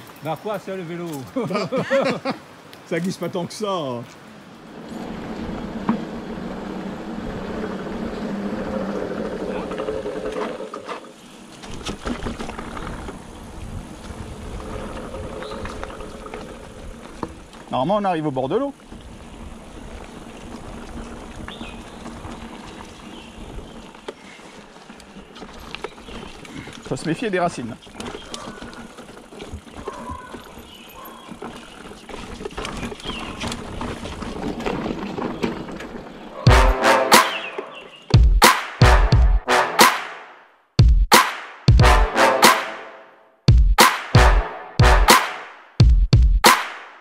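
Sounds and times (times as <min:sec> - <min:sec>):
bike tyres on dirt trail: 0:00.0 - 0:38.3
bike knocking and rattling: 0:04.7 - 0:36.8.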